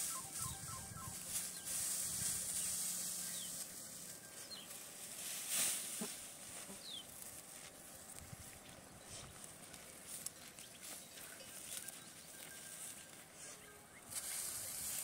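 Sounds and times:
bird-like chirps: 0.0s - 1.8s
steady high hiss: 0.0s - 6.5s
dry straw rustling and crackling: 0.0s - 15.0s.

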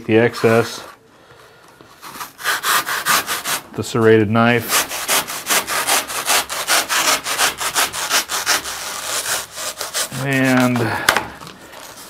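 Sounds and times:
knife sawing through foam: 2.1s - 3.6s, 4.6s - 10.8s, 11.8s - 12.0s.

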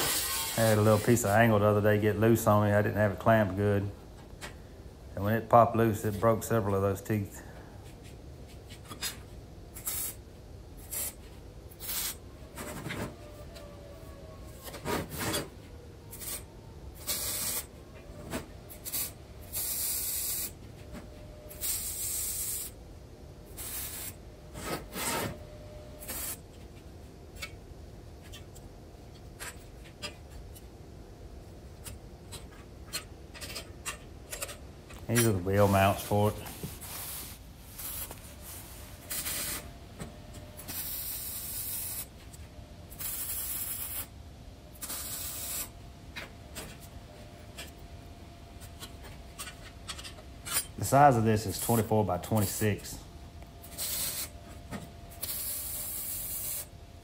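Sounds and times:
welding hiss: 0.0s - 1.3s, 9.8s - 10.2s, 11.8s - 12.2s, 17.0s - 17.7s, 18.7s - 20.6s, 21.5s - 22.8s, 23.5s - 24.2s, 40.7s - 42.1s, 42.9s - 44.1s, 44.8s - 45.7s, 53.8s - 54.3s, 55.2s - 56.7s.

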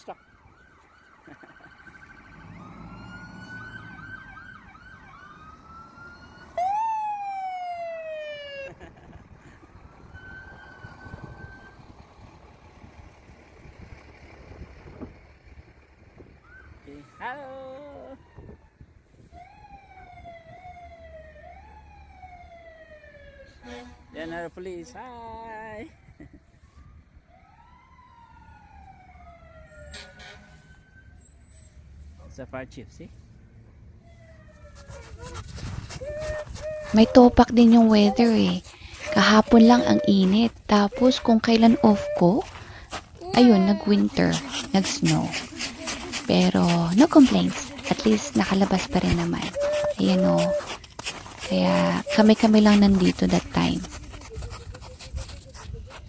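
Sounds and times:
faint siren tone: 0.0s - 8.7s, 9.6s - 12.6s, 25.8s - 32.1s, 33.9s - 50.8s, 51.4s - 54.4s
sweeping siren blast: 0.0s - 8.8s, 9.5s - 13.0s, 16.2s - 24.3s, 26.7s - 32.0s, 33.9s - 54.0s
yelping siren: 0.0s - 12.9s, 16.3s - 24.7s, 25.7s - 31.9s, 33.9s - 56.0s.

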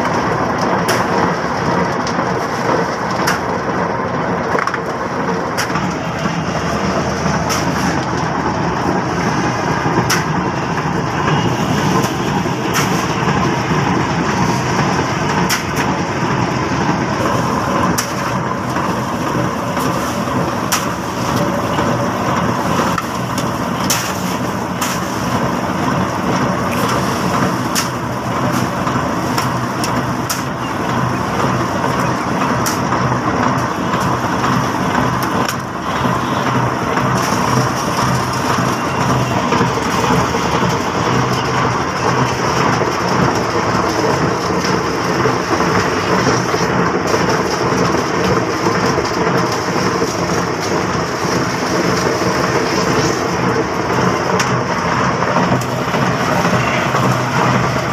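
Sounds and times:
pipe spinning machine running: 0.0s - 57.9s
concrete being shovelled: 5.4s - 8.2s, 11.4s - 16.0s, 17.1s - 41.8s.

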